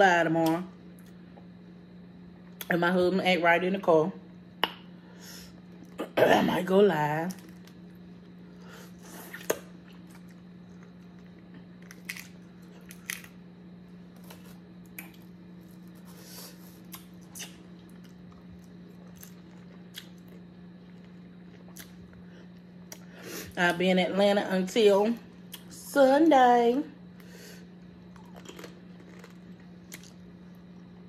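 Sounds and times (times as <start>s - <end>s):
steady low hum: 0.0s - 31.0s
chewing: 28.1s - 30.2s.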